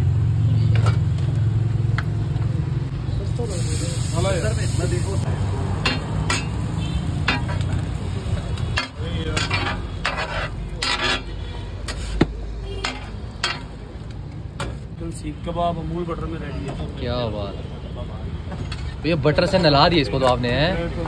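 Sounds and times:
food sizzling: 0:01.4 - 0:12.2
metal spatula scraping griddle: 0:05.8 - 0:07.9, 0:08.7 - 0:13.8.

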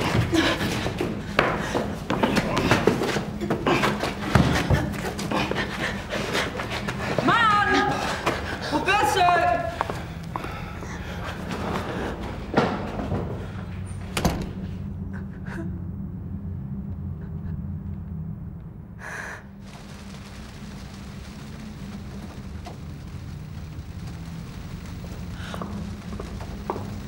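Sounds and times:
low steady drone: 0:09.8 - 0:27.0.

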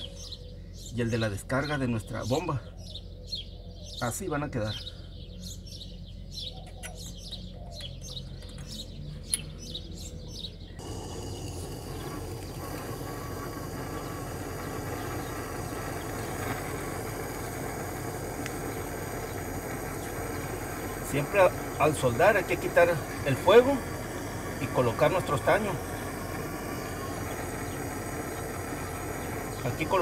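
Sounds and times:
small birds chirping: 0:00.0 - 0:30.0
gas torch flame hissing: 0:10.8 - 0:30.0.

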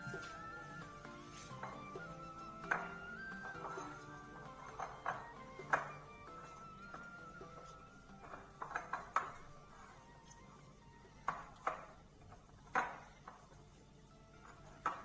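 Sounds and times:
dough being kneaded by hand: 0:00.0 - 0:15.0
metal bowl knocking and clanking: 0:02.6 - 0:06.1, 0:06.9 - 0:09.8.

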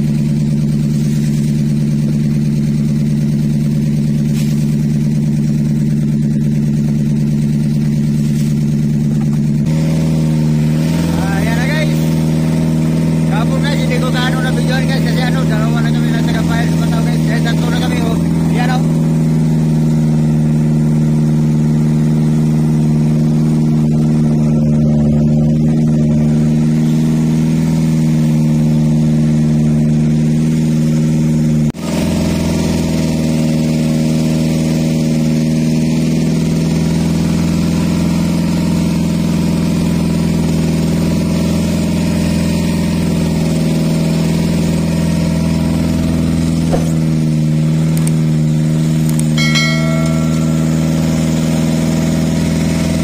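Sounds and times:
boat engine running: 0:00.0 - 0:30.8, 0:43.7 - 0:53.0.

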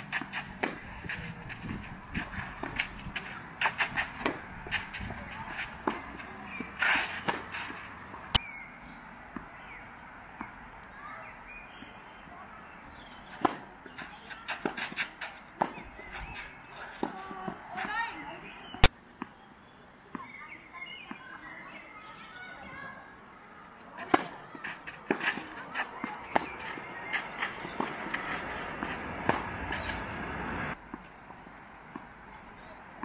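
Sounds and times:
footsteps scuffing on clay: 0:00.0 - 0:08.3, 0:12.9 - 0:18.0, 0:23.8 - 0:30.4
tennis ball bounces: 0:00.0 - 0:08.4, 0:13.2 - 0:19.4, 0:24.0 - 0:31.1
tennis racket hits: 0:00.0 - 0:08.4.

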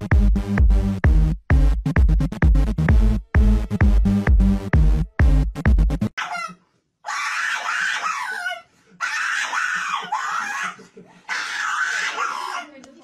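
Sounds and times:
small dog screaming: 0:06.2 - 0:12.8.

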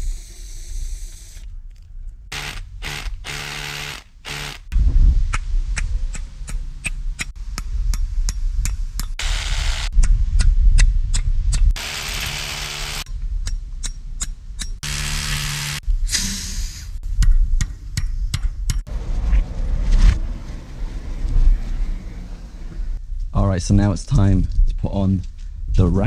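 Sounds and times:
hammer drill boring into concrete: 0:02.3 - 0:04.7, 0:11.8 - 0:13.1, 0:14.8 - 0:15.8.

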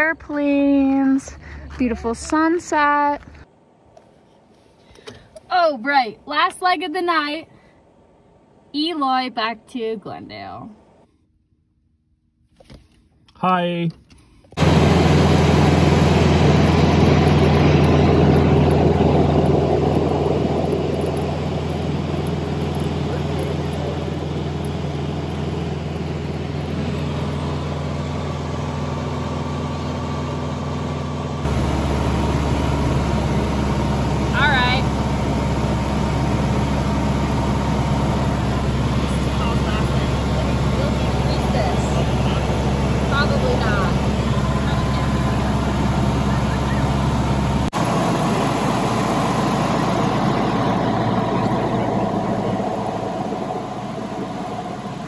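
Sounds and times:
small plane engine and propeller: 0:14.6 - 0:55.0.

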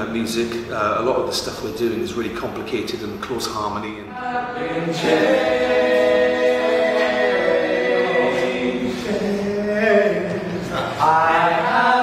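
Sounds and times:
men singing in harmony: 0:04.1 - 0:12.0.

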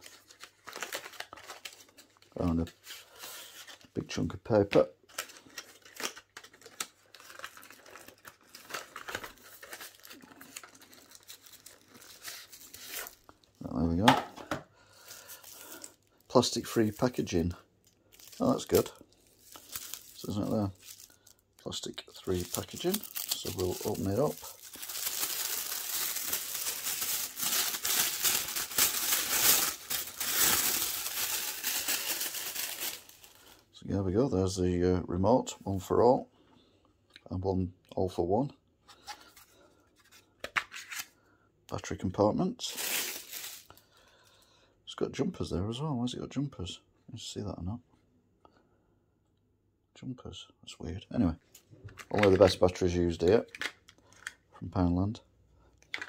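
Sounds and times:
cardboard and paper rustling: 0:00.0 - 0:03.9, 0:05.1 - 0:13.3, 0:18.1 - 0:33.3.

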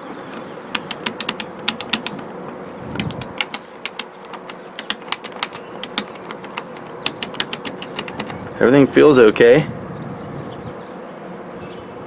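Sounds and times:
plastic rocker switches clicking: 0:00.3 - 0:08.6.

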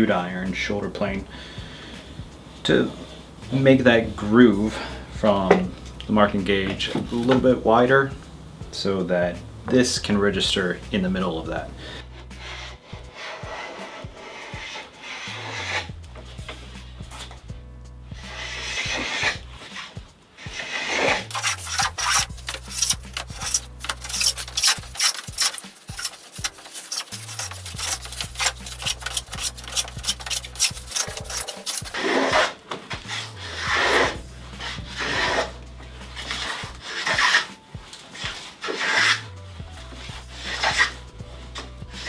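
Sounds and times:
background music with bass line: 0:00.0 - 0:42.0
hand plane scraping wood: 0:11.2 - 0:17.5, 0:18.1 - 0:42.0.

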